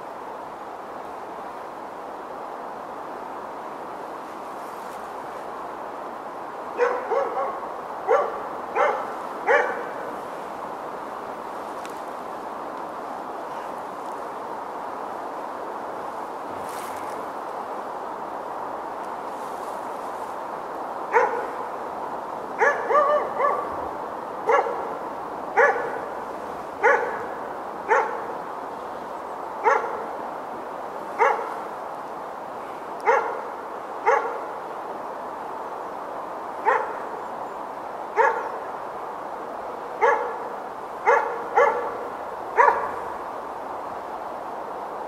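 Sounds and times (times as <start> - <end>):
dog barking: 6.8 - 10.0, 21.1 - 21.6, 22.6 - 23.8, 24.5 - 24.9, 25.6 - 26.0, 26.8 - 27.3, 27.9 - 28.3, 29.6 - 30.0, 31.2 - 31.6, 33.0 - 33.4, 34.0 - 34.4, 36.6 - 37.0, 38.2 - 38.6, 40.0 - 42.0, 42.6 - 43.0.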